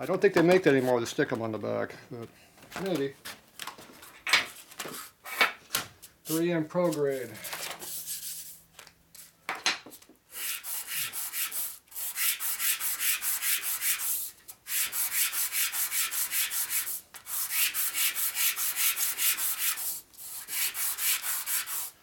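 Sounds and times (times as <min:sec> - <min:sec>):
metal rubbing on sandpaper: 0:06.3 - 0:08.6, 0:10.3 - 0:22.0.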